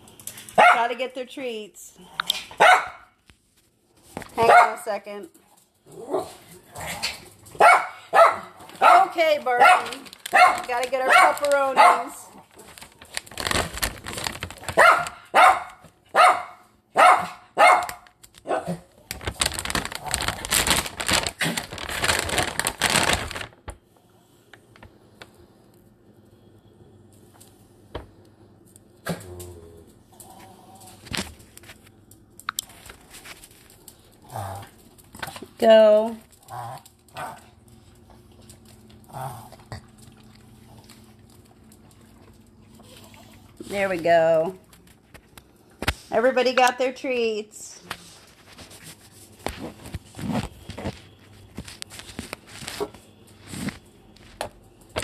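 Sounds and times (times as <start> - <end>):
dog barking: 0.6 - 0.9, 2.5 - 3.2, 4.4 - 4.9, 7.6 - 12.2, 14.8 - 18.9
dogs chewing treats: 4.0 - 16.0, 17.8 - 23.8, 28.6 - 46.6
claws clicking on tile floor: 5.3 - 15.9, 17.6 - 23.8, 30.1 - 39.3
plastic packaging crinkling: 7.1 - 15.9, 17.7 - 23.8, 30.8 - 42.8, 47.9 - 55.0.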